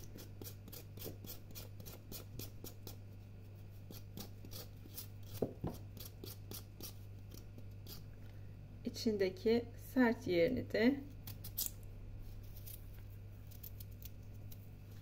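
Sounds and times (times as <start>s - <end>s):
knife scraping thistle root: 11.2s - 14.7s.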